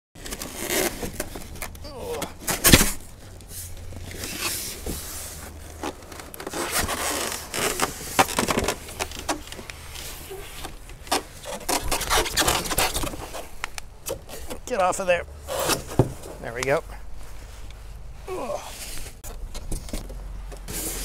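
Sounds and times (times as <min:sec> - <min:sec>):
foam and cardboard scraping: 0:00.2 - 0:01.6, 0:02.3 - 0:13.6, 0:15.4 - 0:16.6, 0:20.6 - 0:21.0
rustling: 0:00.2 - 0:21.0.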